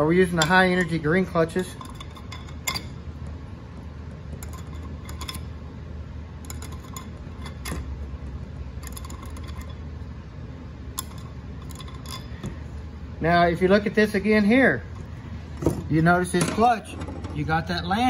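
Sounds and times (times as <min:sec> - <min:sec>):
steady low hum: 0:00.0 - 0:18.0
metal clutch plates clinking: 0:00.2 - 0:03.2, 0:04.3 - 0:05.6, 0:06.4 - 0:08.2, 0:08.8 - 0:09.8, 0:11.0 - 0:12.7.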